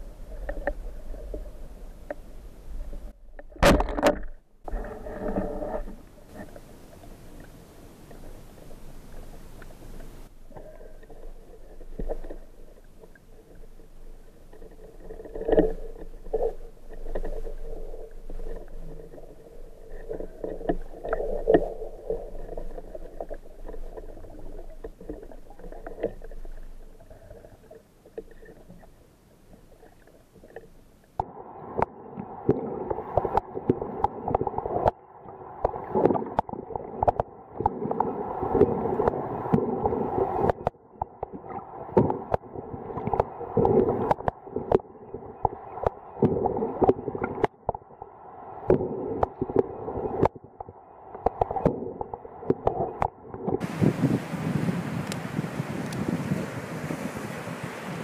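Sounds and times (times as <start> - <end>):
muffled underwater water wash: 0.0 - 58.0
short underwater clicks and knocks: 3.3 - 11.2.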